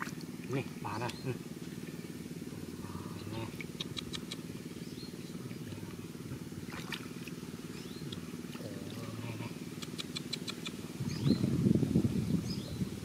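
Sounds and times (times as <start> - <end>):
water splashing: 0.0 - 2.0, 5.4 - 9.3.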